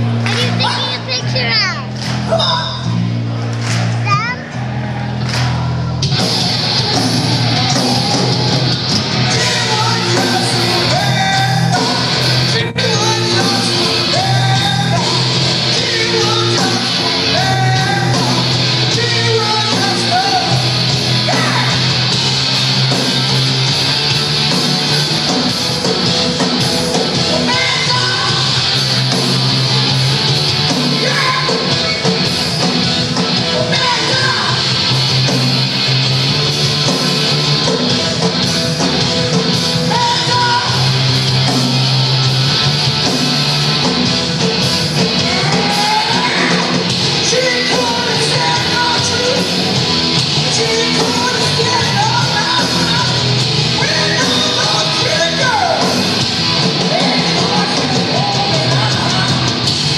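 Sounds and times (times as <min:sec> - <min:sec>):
electric guitars: 0:00.0 - 0:59.9
punk rock band playing live: 0:00.0 - 0:59.9
shouted sung vocals: 0:45.2 - 0:49.6, 0:56.8 - 0:59.6.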